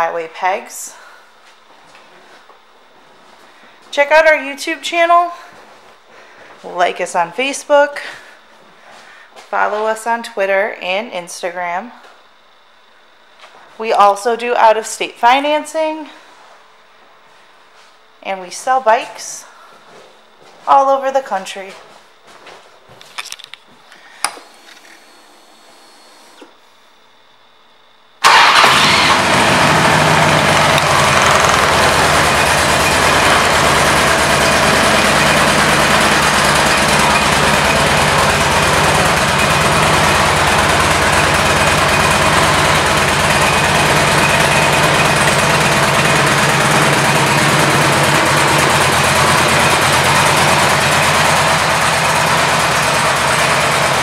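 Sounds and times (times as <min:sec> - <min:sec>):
motorcycle engine idling: 0:28.2 - 0:54.0.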